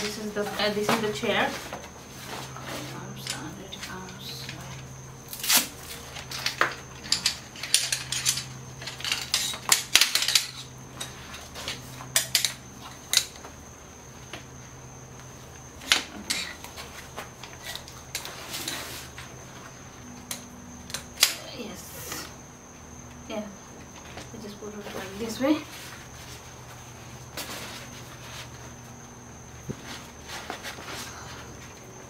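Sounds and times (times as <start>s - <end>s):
chair poles clacking and clicking: 0.0s - 13.6s, 15.8s - 19.4s.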